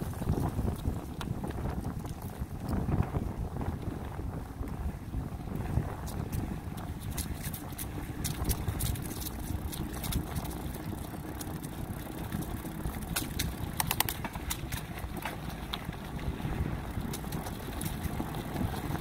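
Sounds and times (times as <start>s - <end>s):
bicycle tyres rumbling: 0.0s - 19.0s
wind on microphone: 0.0s - 19.0s
sharp clicks and rattles: 7.1s - 16.0s.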